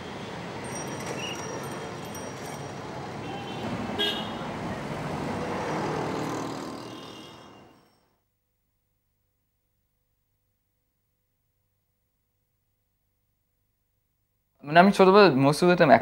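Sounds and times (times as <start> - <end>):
passing traffic: 0.0 - 8.2.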